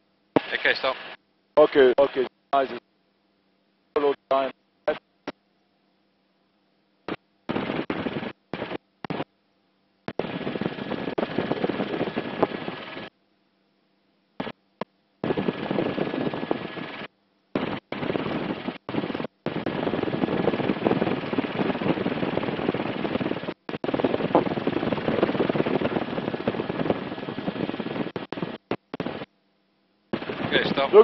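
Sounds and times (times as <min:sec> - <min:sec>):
helicopter engine noise: 0:07.1 - 0:09.2, 0:10.1 - 0:13.1, 0:15.2 - 0:29.3, 0:30.1 - 0:31.0
helicopter rotor chatter: 0:07.5 - 0:09.2, 0:10.1 - 0:13.1, 0:15.2 - 0:29.3, 0:30.1 - 0:31.0.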